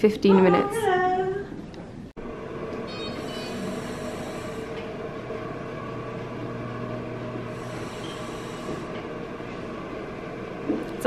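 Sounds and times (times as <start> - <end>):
steady low hum: 0.0 - 11.0
breathing through mouthpiece: 3.2 - 4.8, 7.5 - 9.0.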